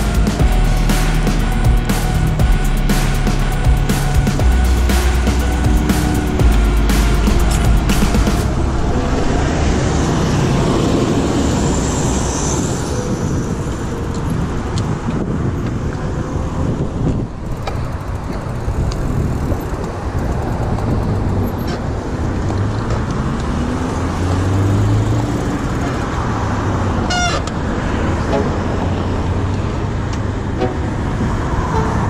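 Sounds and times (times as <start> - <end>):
road traffic rumble: 0.0 - 32.0
vehicle engine passing by: 4.0 - 13.6, 22.6 - 27.0.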